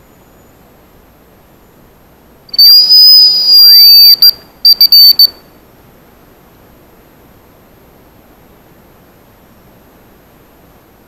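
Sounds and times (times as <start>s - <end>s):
decoy whistle imitating bird song: 2.5s - 5.5s.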